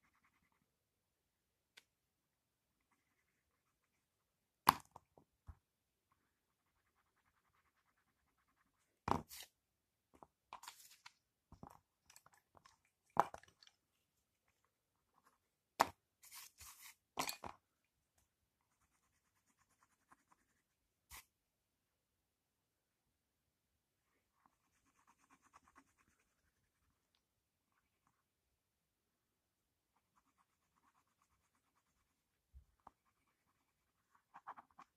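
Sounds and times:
pencil scratching on paper: 0.0s - 0.8s, 2.7s - 4.3s, 6.1s - 9.5s, 18.6s - 21.3s, 24.1s - 27.1s, 29.9s - 34.9s.

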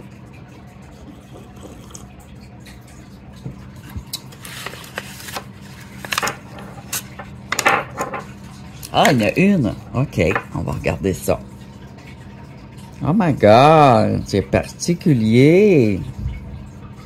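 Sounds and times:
packaging rustling: 4.3s - 6.4s.

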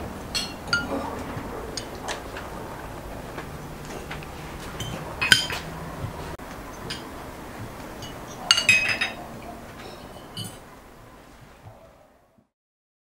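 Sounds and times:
cutlery clinking on china and glass: 0.3s - 2.2s, 4.8s - 5.7s, 6.7s - 7.1s, 8.0s - 10.7s.

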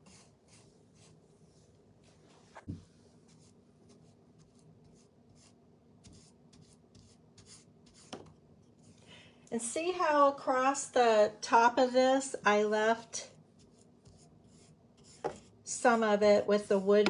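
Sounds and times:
soft knock: 2.6s - 2.9s.

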